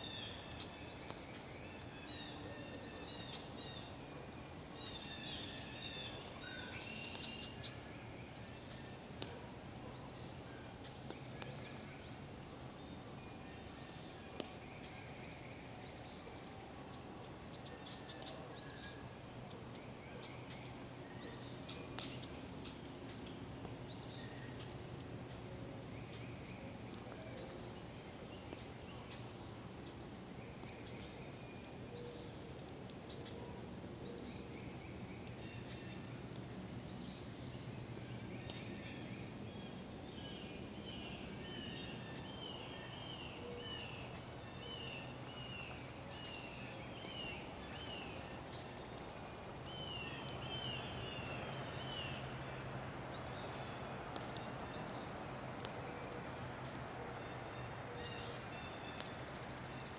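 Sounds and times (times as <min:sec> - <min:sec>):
songbirds singing: 0:00.0 - 0:59.9
campfire pops: 0:08.7 - 0:09.8, 0:11.0 - 0:14.7, 0:21.5 - 0:22.8, 0:35.6 - 0:38.8, 0:52.7 - 0:57.4, 0:58.9 - 0:59.9.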